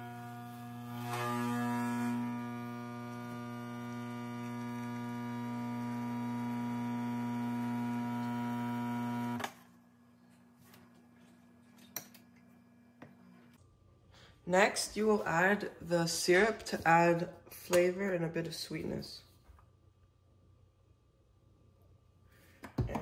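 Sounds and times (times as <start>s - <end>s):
espresso machine pump humming: 0.0s - 9.4s.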